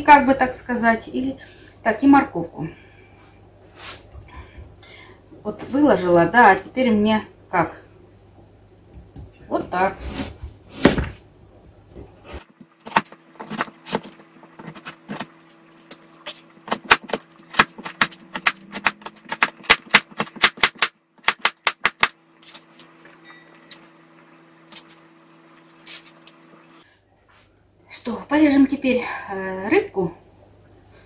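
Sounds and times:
knife chopping on cutting board: 16.3s - 22.1s.

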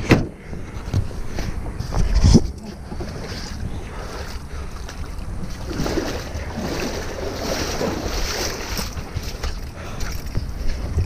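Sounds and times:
steady low rumble: 0.0s - 11.0s
wind on microphone: 0.0s - 11.0s
water splashing and running off: 3.0s - 9.5s.

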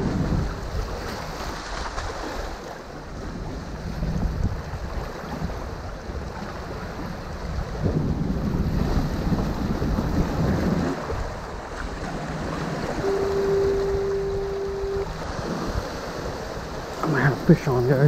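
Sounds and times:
waves washing against rocks: 0.0s - 18.0s
wind buffeting microphone: 0.0s - 18.0s
foghorn steady note: 12.2s - 15.9s.

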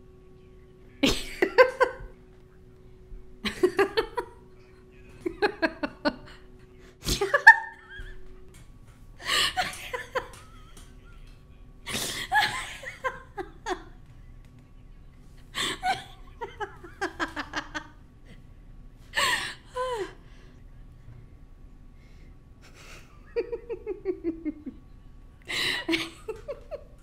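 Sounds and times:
person laughing: 1.0s - 2.2s, 3.4s - 4.5s, 5.2s - 8.3s, 9.2s - 14.0s, 15.6s - 18.0s, 22.6s - 24.8s, 25.5s - 27.0s.

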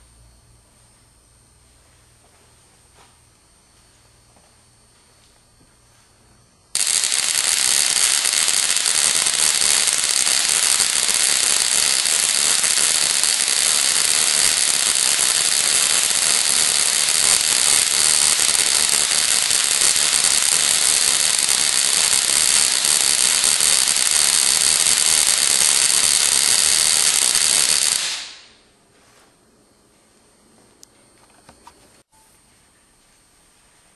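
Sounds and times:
induction coil spark buzzing: 6.7s - 28.7s.

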